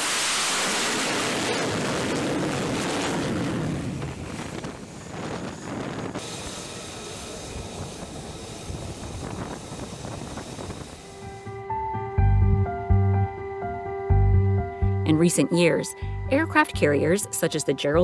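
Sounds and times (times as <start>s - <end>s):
jet engine roaring: 0.0s - 12.0s
wind noise: 0.7s - 13.1s.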